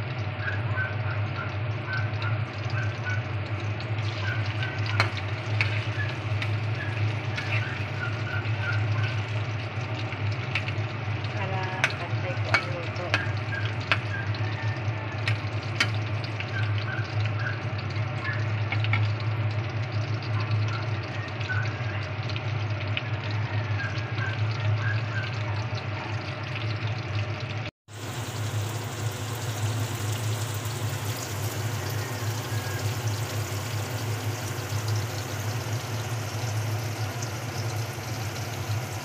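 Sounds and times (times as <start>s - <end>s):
food deep-frying in oil: 0.0s - 39.0s
low hum: 2.2s - 17.9s
oil crackling: 3.0s - 19.7s
metal spatula scraping pan: 7.2s - 8.2s.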